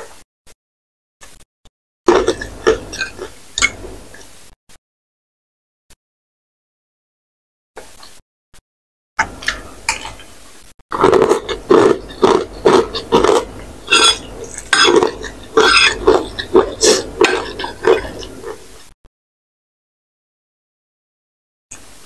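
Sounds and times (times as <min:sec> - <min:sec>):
chewing noodles: 0:02.1 - 0:04.2, 0:10.9 - 0:18.9
wet mouth sounds: 0:02.1 - 0:04.3, 0:10.9 - 0:18.7.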